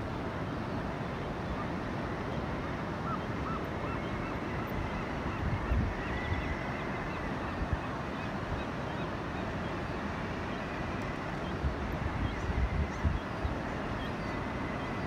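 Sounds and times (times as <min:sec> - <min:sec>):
ocean surf: 0:00.0 - 0:15.0
faint seabird calls: 0:00.3 - 0:15.0
wind buffeting microphone: 0:04.7 - 0:06.6, 0:11.6 - 0:13.6.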